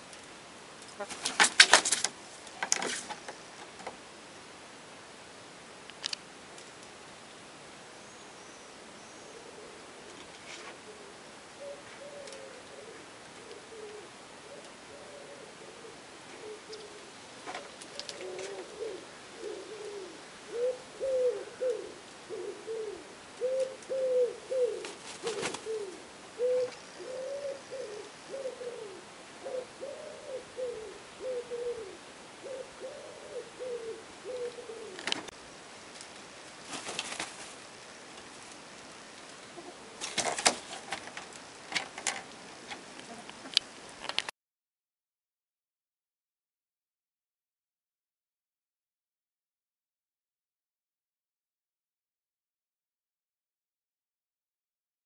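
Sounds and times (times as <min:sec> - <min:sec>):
hens clucking softly: 0:39.5 - 0:40.0.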